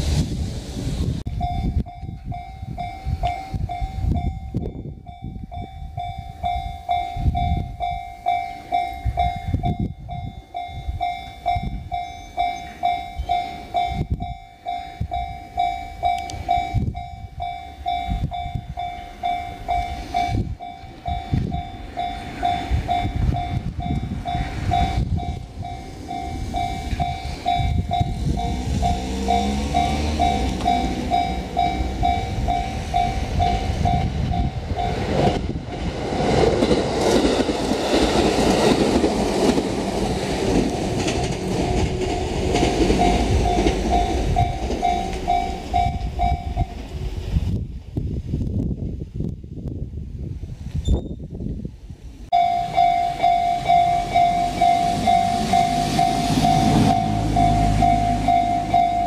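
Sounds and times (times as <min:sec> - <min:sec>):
electric train passing: 0:00.0 - 0:49.1, 0:51.6 - 0:59.0
level crossing electronic bell: 0:01.4 - 0:33.7, 0:52.4 - 0:59.0.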